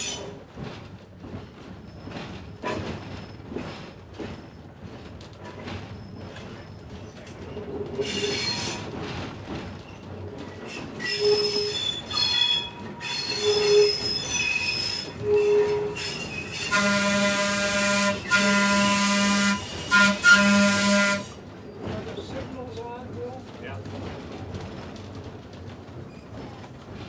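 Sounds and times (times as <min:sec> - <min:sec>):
steel wheels squealing on track: 0:00.0 - 0:00.4, 0:05.8 - 0:07.2, 0:08.0 - 0:09.0, 0:10.6 - 0:22.0
trolley horn: 0:11.0 - 0:21.4.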